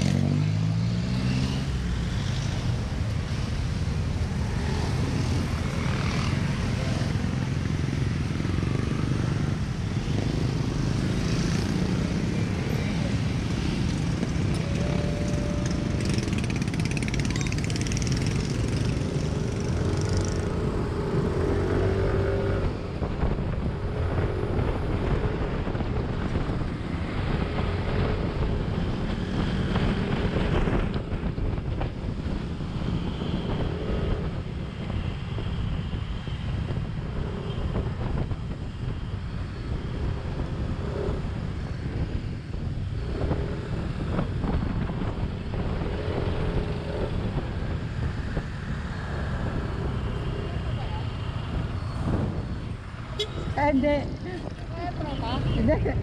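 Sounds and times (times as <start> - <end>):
scooter and motorcycle engines: 0.0 - 56.0
wind and road noise: 0.0 - 56.0
horn tones from passing bikes: 53.0 - 53.9.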